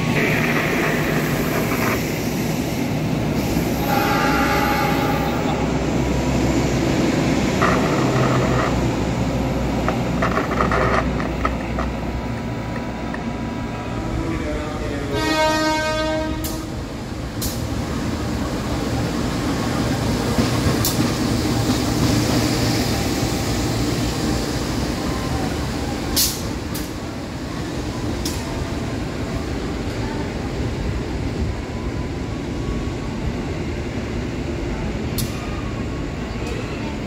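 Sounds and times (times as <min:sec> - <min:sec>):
locomotive engine rumble: 0:00.0 - 0:15.5
train wheels on rails: 0:00.0 - 0:37.0.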